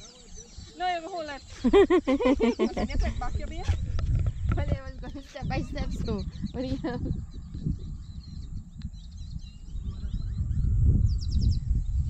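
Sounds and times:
birds chirping: 0.0 - 12.0
wind buffeting microphone: 0.0 - 12.0.

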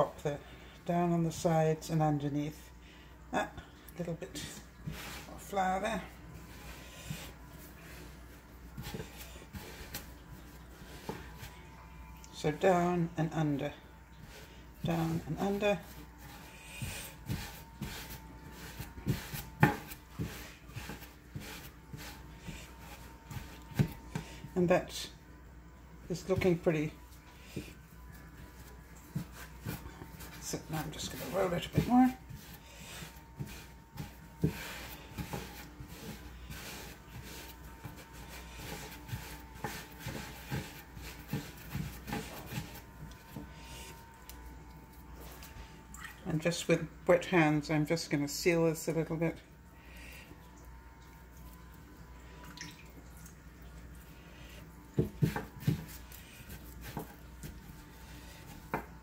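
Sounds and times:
faint steady hum: 0.0 - 59.0
dough scuffing on wooden board: 4.3 - 11.7, 14.2 - 24.6, 27.4 - 44.6, 54.9 - 59.0.

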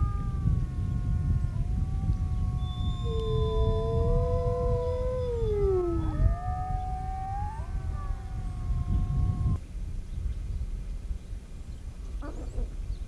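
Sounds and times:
low rumble: 0.0 - 9.6
wolves howling in chorus: 0.0 - 9.6.

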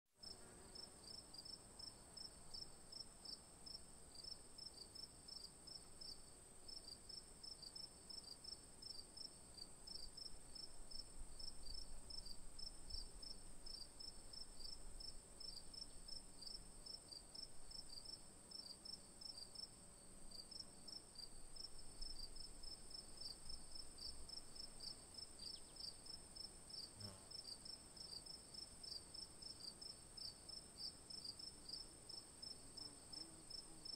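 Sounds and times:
insect chirping: 0.2 - 33.9.

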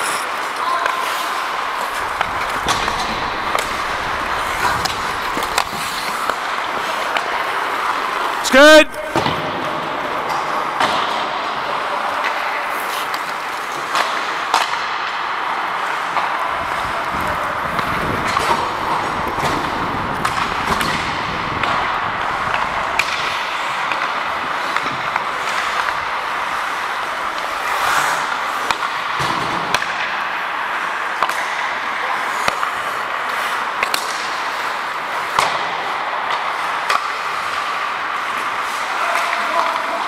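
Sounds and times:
hockey sticks and puck clacking: 0.0 - 40.0
skate blades on ice: 0.0 - 40.0
rushing air: 1.5 - 6.9.

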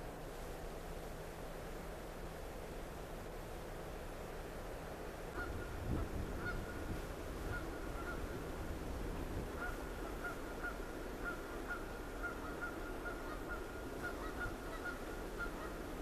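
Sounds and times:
steady background hiss: 0.0 - 16.0
distant geese honking: 5.3 - 16.0.

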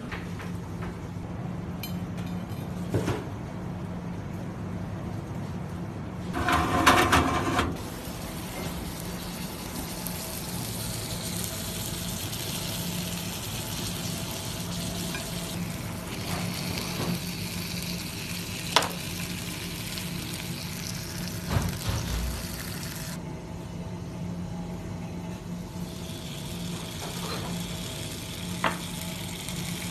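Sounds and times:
food sizzling on hot platter: 7.8 - 23.2, 25.8 - 29.9.

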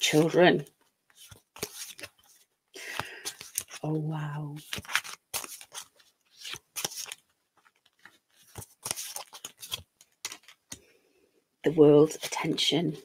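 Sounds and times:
cards shuffled on a table: 1.1 - 3.8, 4.5 - 10.9.

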